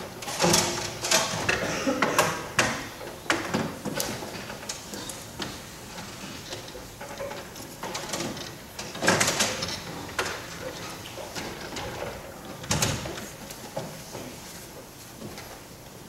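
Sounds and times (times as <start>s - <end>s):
chairs and desks knocking and scraping: 0.0s - 15.7s.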